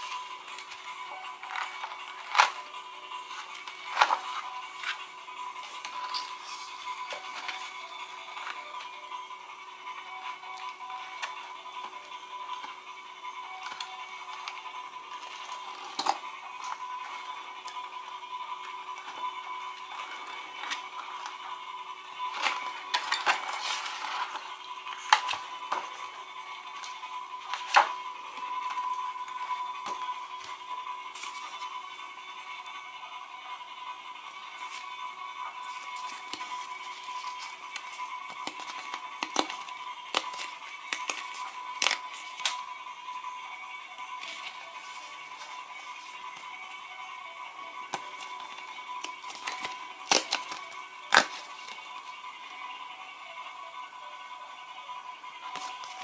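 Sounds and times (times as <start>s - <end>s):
book pages rustling: 3.3s - 5.0s, 35.6s - 42.6s.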